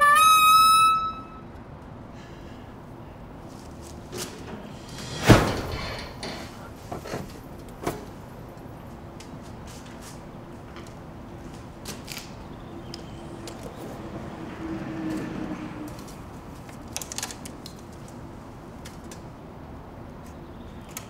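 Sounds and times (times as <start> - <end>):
loud ringing knock: 4.8 - 6.6.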